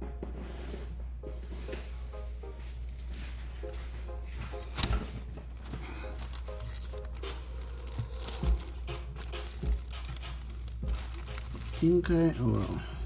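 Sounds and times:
plastic bag rustling: 2.7 - 13.0.

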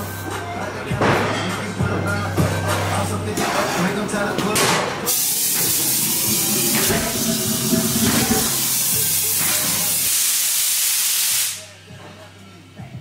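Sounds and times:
pressurized gas hissing: 5.1 - 11.7.

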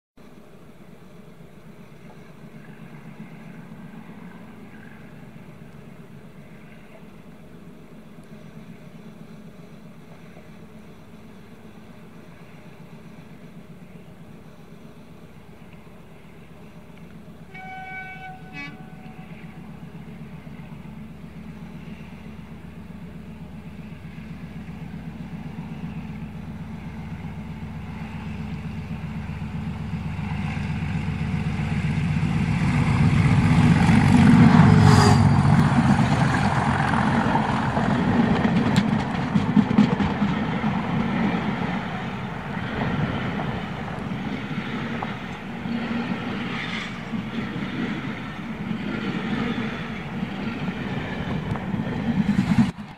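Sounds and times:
diesel locomotive engine working hard: 0.2 - 52.9
coaches rumbling on rails: 0.4 - 52.9
train horn toot: 17.4 - 19.7, 34.1 - 36.0.

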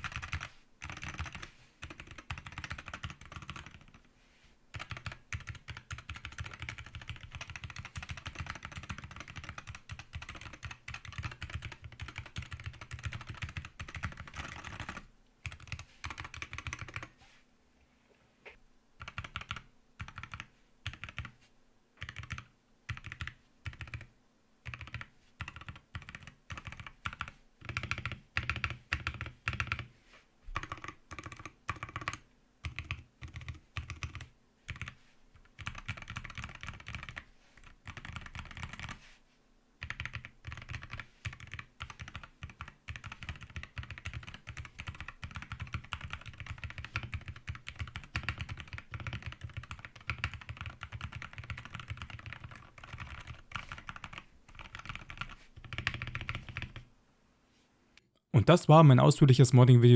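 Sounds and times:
keyboard typing: 0.0 - 4.1, 4.7 - 17.2, 19.0 - 21.4, 22.0 - 29.9, 30.5 - 39.0, 39.8 - 56.9.

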